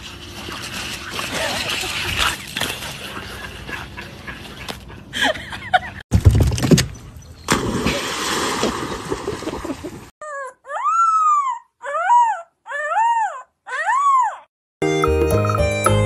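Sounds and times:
water splashing: 0:00.0 - 0:03.8, 0:07.5 - 0:10.1.

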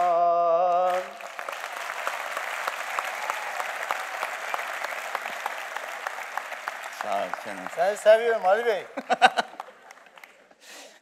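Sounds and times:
man singing: 0:00.0 - 0:01.2
audience applause: 0:00.7 - 0:10.8.

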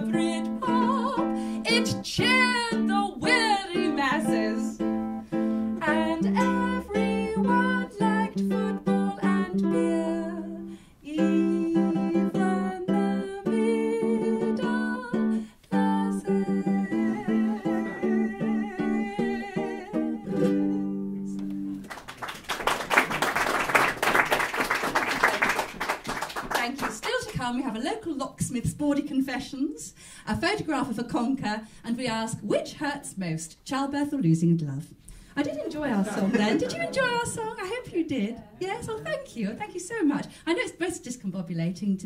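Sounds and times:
plucked string notes: 0:00.0 - 0:21.8.

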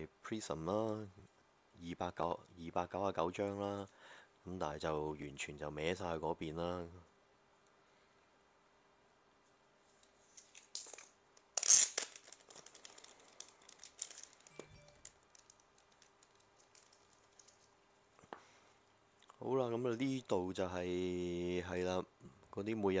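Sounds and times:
plastic card sleeves rustling: 0:10.1 - 0:17.8
small clicks: 0:10.4 - 0:17.7.

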